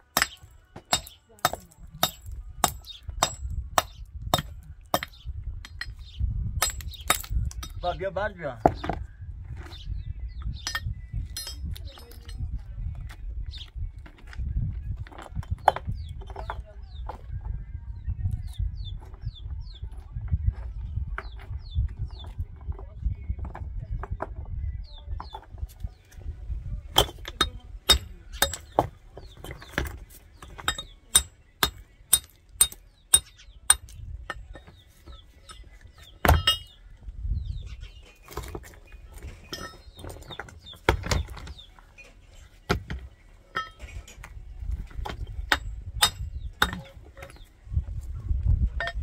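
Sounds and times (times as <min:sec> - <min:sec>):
stones clacking and knocking: 0:08.6 - 0:09.8, 0:10.5 - 0:17.3, 0:20.4 - 0:26.2, 0:26.9 - 0:36.8, 0:38.1 - 0:49.0.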